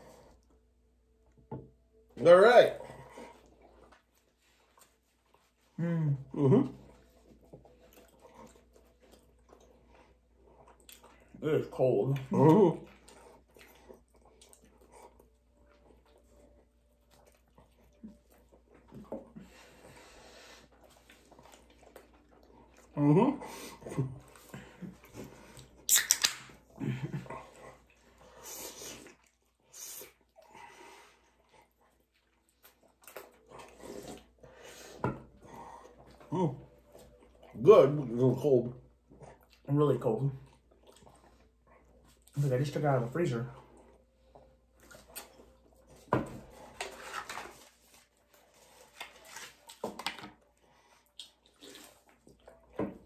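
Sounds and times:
people chewing: 2.8s - 11.4s, 12.0s - 53.0s
soft hissy breaths: 19.3s - 21.5s.

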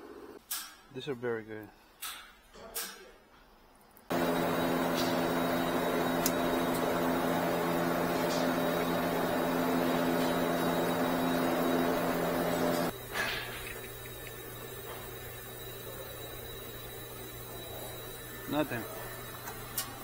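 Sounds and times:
blower fan whirring hum: 4.1s - 20.0s.

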